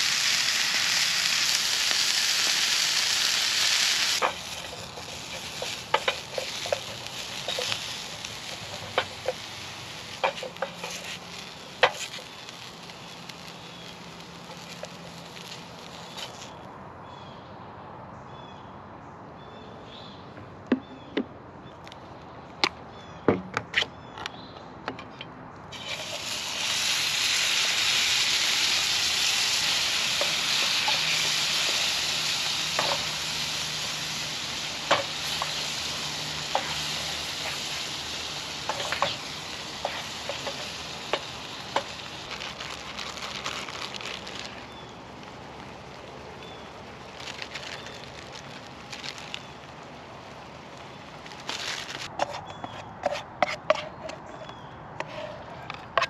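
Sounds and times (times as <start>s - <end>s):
beans sizzling in hot pan: 0.0s - 16.6s, 25.7s - 52.2s
utensil scraping in pan: 0.0s - 16.6s, 25.8s - 42.9s, 51.5s - 56.0s.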